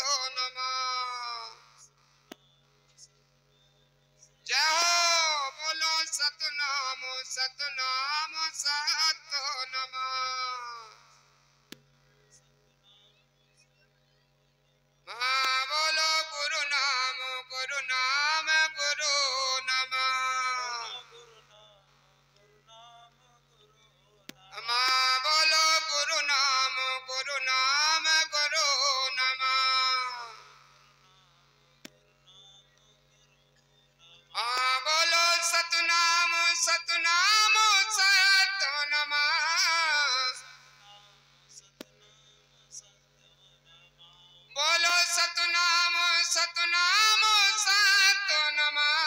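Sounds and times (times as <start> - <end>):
person singing over loudspeaker: 0.0 - 1.6, 4.4 - 11.0, 15.1 - 21.8, 22.7 - 31.2, 34.0 - 49.0
steady low hum: 0.0 - 49.0
person singing devotional melody: 24.3 - 30.6.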